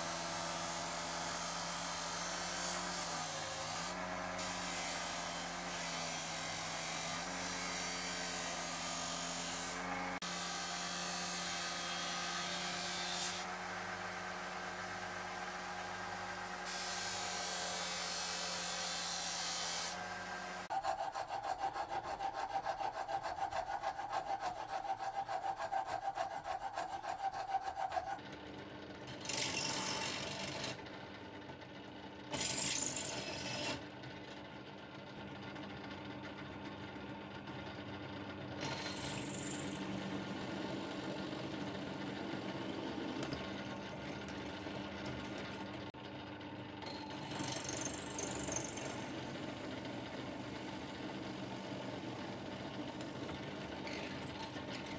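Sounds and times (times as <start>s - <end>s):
wood rasping on sanding disc: 0.5s - 13.5s, 16.7s - 28.2s
drill press boring into steel: 46.8s - 49.4s.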